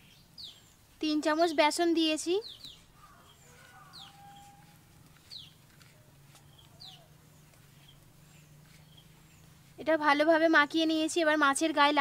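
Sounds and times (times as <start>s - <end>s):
bird chirps: 0.0s - 0.9s, 2.2s - 9.8s.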